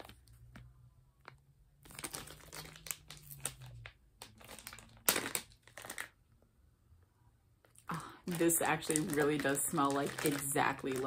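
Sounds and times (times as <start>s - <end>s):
plastic bag crinkling: 1.2s - 6.2s, 7.9s - 11.0s.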